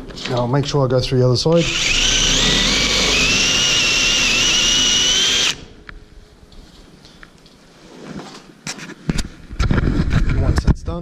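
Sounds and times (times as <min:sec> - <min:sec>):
drill cutting metal: 0:01.6 - 0:05.7.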